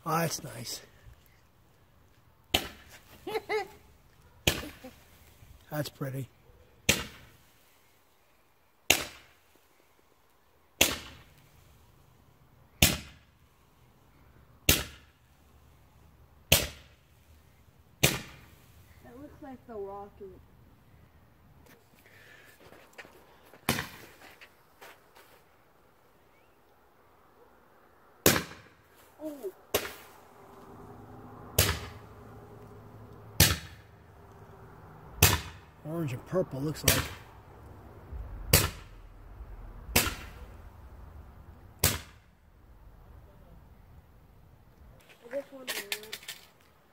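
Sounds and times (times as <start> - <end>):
roman candle firework pops: 4.4 - 4.9, 6.8 - 7.4, 8.9 - 9.4, 10.8 - 11.5, 12.8 - 13.2, 14.7 - 15.1, 16.5 - 17.0, 18.0 - 18.5, 28.2 - 28.8, 31.6 - 32.0, 38.4 - 39.1, 39.8 - 40.6, 41.8 - 42.3.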